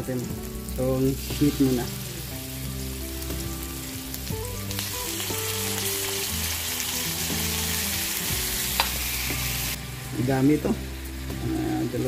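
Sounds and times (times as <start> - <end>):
meat sizzling in hot oil: 0.0 - 12.0
oil crackling and spitting: 0.7 - 9.8.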